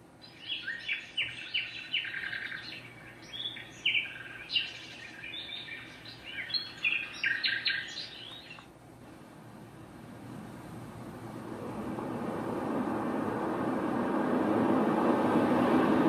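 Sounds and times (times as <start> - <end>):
recorded birdsong chirps and trills: 0.0 - 8.8.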